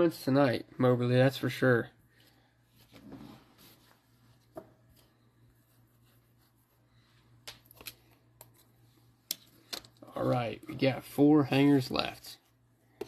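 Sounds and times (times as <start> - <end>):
trading cards clicking and rustling: 7.4 - 10.5.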